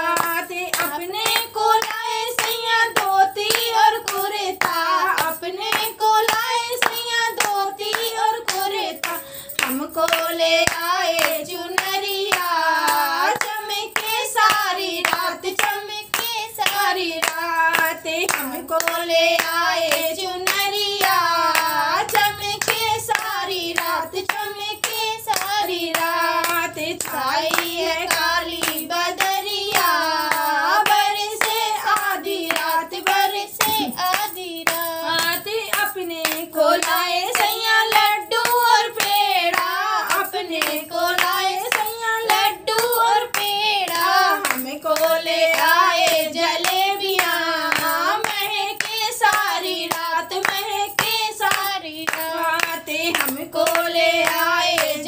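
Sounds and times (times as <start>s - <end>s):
rhythmic hand claps: 0.0s - 55.0s
woman singing: 0.0s - 55.0s.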